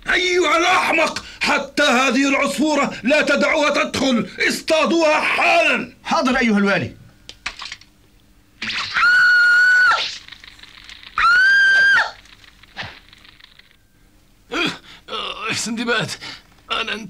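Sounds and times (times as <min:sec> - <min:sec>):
cartoon bird screaming: 0:08.6 - 0:10.3, 0:11.2 - 0:12.3.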